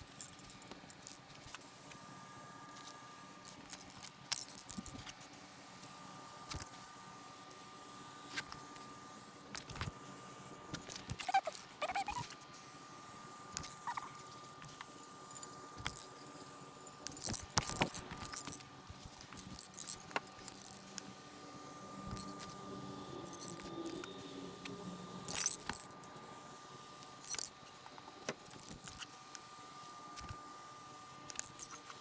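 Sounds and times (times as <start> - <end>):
faint high hum: 0.0 - 32.0
metallic clinks and rattles: 17.0 - 20.8, 25.3 - 26.2.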